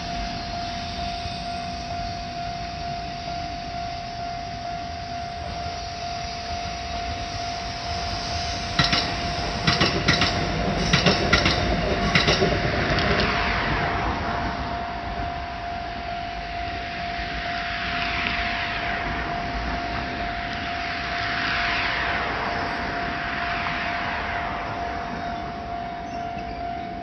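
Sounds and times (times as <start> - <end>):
level crossing alarm ringing: 0.0 - 12.5, 14.7 - 17.4, 25.0 - 27.0
train wheels clacking: 8.7 - 13.4.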